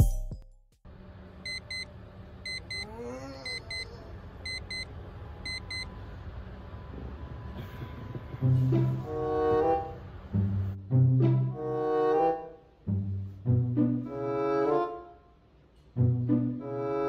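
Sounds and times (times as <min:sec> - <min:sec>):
electronic alarm double beeps: 0:01.5 - 0:01.9, 0:02.5 - 0:02.9, 0:04.5 - 0:05.9.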